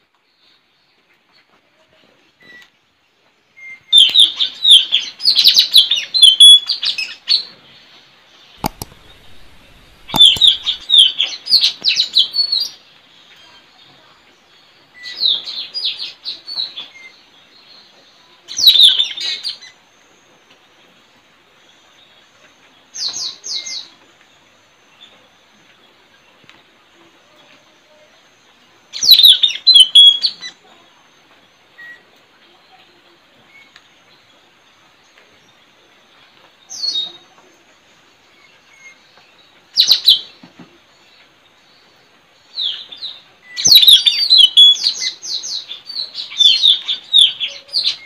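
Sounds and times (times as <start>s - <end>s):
parrots shrill chirping: 8.6s - 11.2s, 43.6s - 44.9s.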